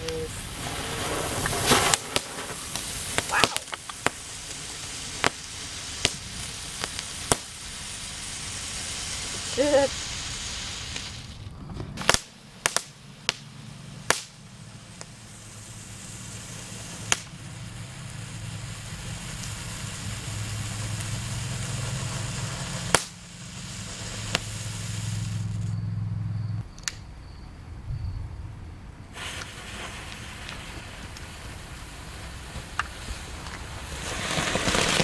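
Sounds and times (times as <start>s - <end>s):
firework pops: 0.0s - 7.6s, 10.4s - 14.4s, 15.0s - 18.0s, 18.8s - 25.8s, 29.1s - 35.0s
fireworks hissing: 0.0s - 25.8s, 29.1s - 35.0s.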